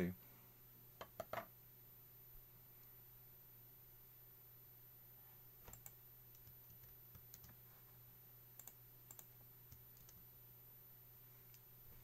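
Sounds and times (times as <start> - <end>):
faint low hum: 0.0 - 12.0
computer mouse buttons clicking: 5.6 - 7.6, 8.6 - 10.2.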